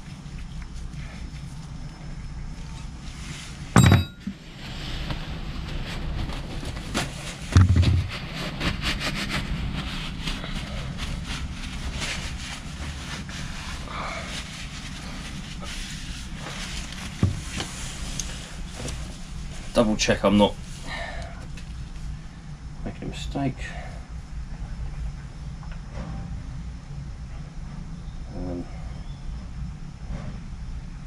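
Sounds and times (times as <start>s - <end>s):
steady low rumble: 0.0s - 31.0s
rag wiping metal casing: 7.3s - 19.8s.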